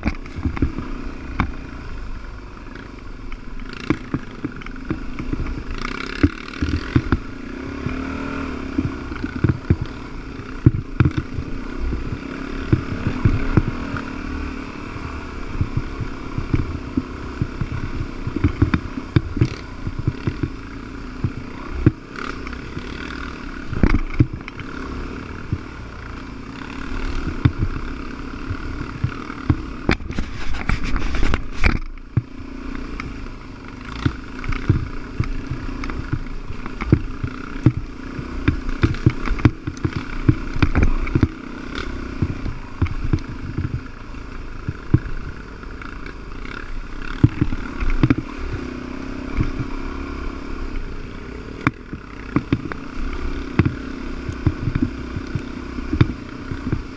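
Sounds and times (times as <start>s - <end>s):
dirt bike engine running: 0.0s - 56.9s.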